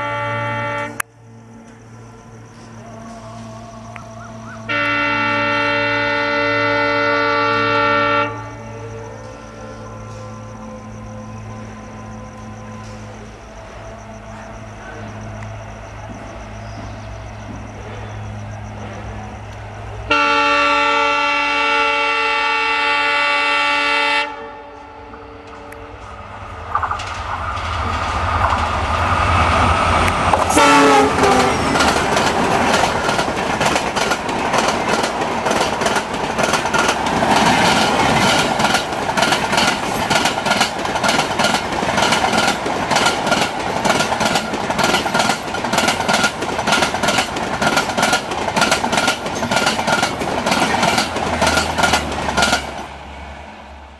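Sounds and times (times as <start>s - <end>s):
multi-note train horn: 0.0s - 1.1s, 4.6s - 15.6s, 20.0s - 26.2s, 30.4s - 32.0s
diesel locomotive engine passing: 0.0s - 53.9s
wheels clattering over rail joints: 26.6s - 53.0s.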